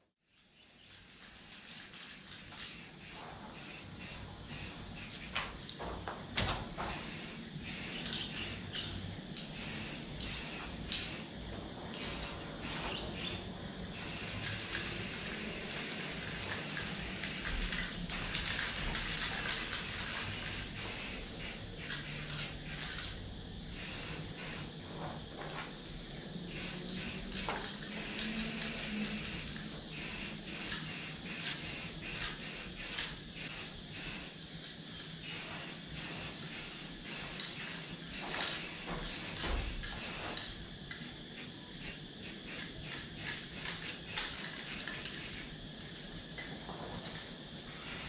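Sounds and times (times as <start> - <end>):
spray paint cans hissing: 0.3 - 48.0.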